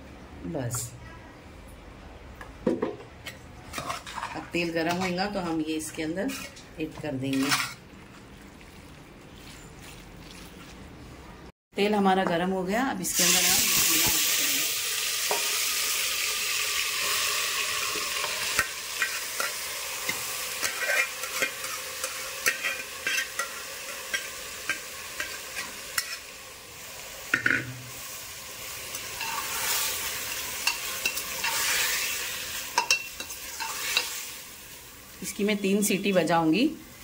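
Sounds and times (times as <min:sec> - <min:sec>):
metal spoon scraping pot: 0:03.7 - 0:06.6, 0:07.2 - 0:07.8, 0:18.2 - 0:26.2, 0:29.2 - 0:29.9, 0:30.6 - 0:32.1
meat sizzling in hot oil: 0:13.1 - 0:35.2.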